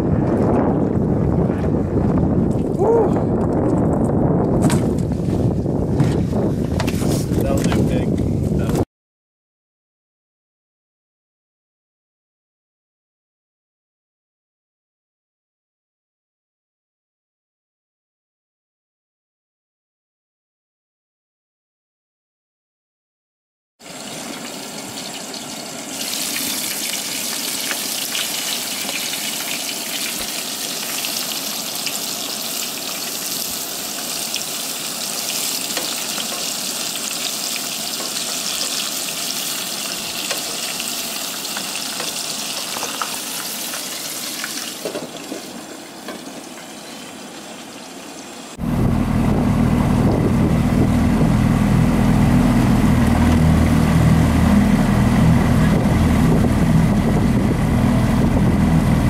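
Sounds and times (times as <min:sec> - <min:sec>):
deep frying sizzle: 0:23.8 - 0:56.8
outboard motor running: 0:48.6 - 0:59.0.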